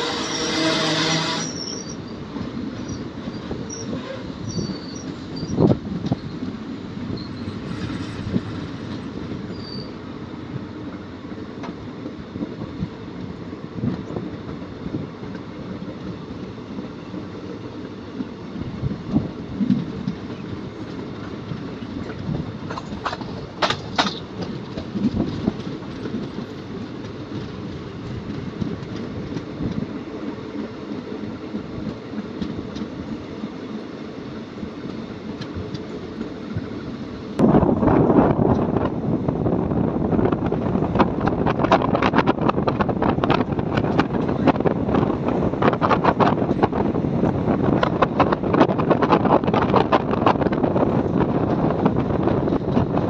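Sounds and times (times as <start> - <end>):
wheels squealing: 0.0 - 6.4, 7.1 - 10.0
train rumbling on track: 0.0 - 53.0
wheels clattering over rail joints: 19.1 - 29.9.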